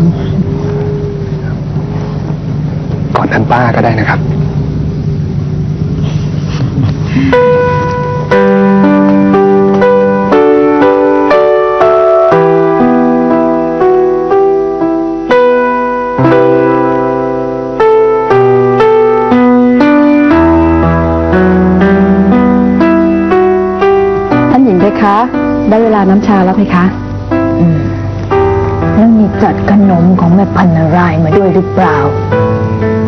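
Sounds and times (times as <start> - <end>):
slow solo piano music: 7.2 - 33.0.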